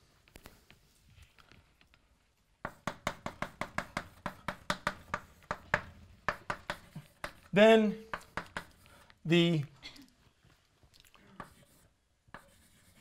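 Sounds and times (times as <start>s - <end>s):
chalk tapping on blackboard: 2.6s - 9.0s, 11.4s - 13.0s.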